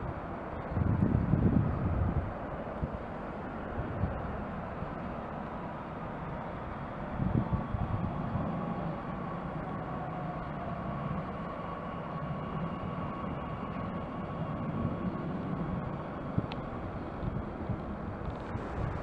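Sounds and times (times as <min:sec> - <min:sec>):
train rumbling and braking: 0:00.0 - 0:19.0.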